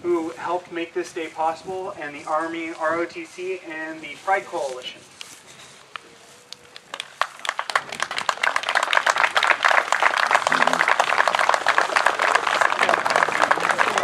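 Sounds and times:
crowd applauding: 6.8s - 14.0s.

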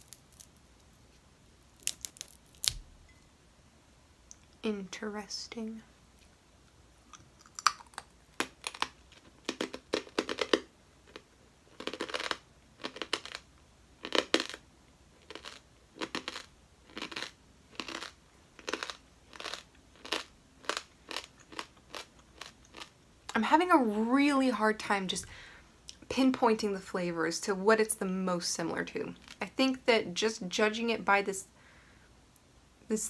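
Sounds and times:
crunchy chewing: 0.0s - 0.9s, 1.6s - 2.8s, 7.0s - 13.4s, 14.0s - 14.6s, 15.2s - 23.0s.

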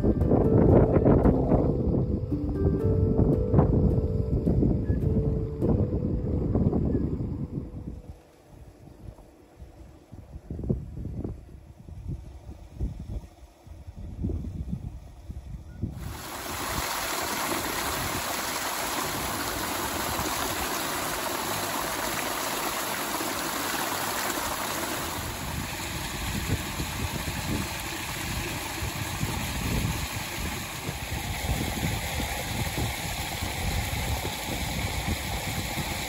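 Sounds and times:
wind buffeting microphone: 0.0s - 36.0s
water rushing: 16.0s - 36.0s.

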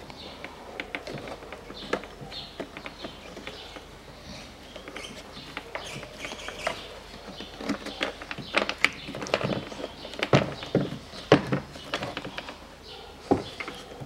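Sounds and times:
plastic panel clicking and knocking: 4.8s - 12.6s.

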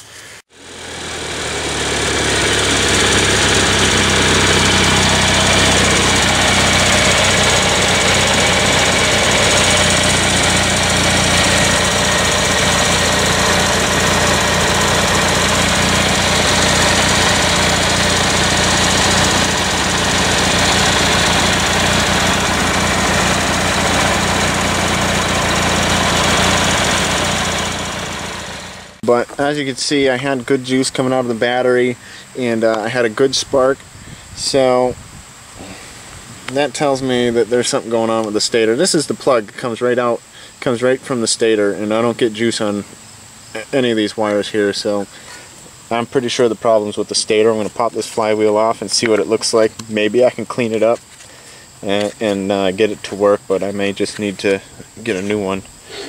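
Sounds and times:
riding mower engine running: 0.0s - 40.5s.

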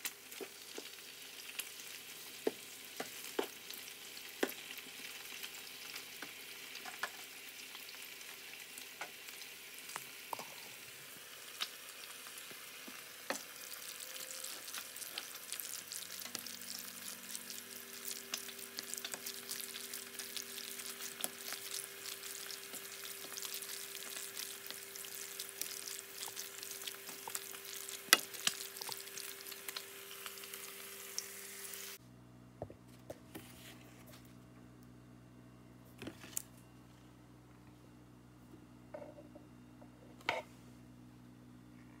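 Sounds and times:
food sizzling in a frying pan: 0.0s - 32.0s.

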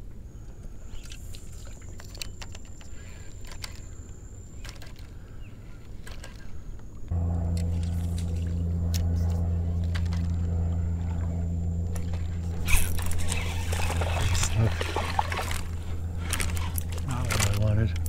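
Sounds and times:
steady low hum: 0.0s - 18.0s
rod and reel handling: 0.9s - 5.2s, 5.8s - 6.9s, 7.5s - 11.3s, 11.9s - 18.0s
water splashing: 11.9s - 17.6s.

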